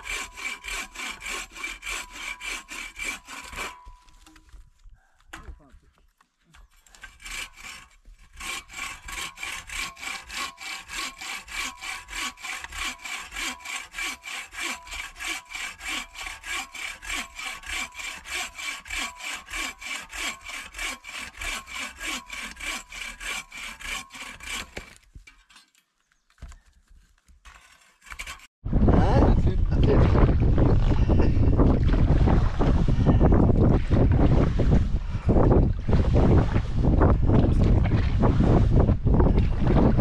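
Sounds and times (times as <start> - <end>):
saw cutting through log: 0.0 - 4.4, 6.6 - 25.3, 27.5 - 28.6.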